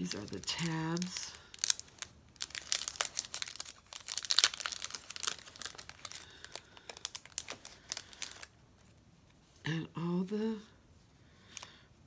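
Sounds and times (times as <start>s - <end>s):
plastic packaging crinkling: 0.0s - 8.9s.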